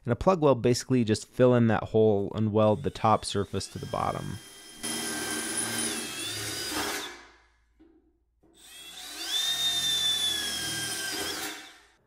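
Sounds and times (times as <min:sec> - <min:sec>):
electric drill boring through metal: 0:02.8 - 0:07.2, 0:08.6 - 0:12.0.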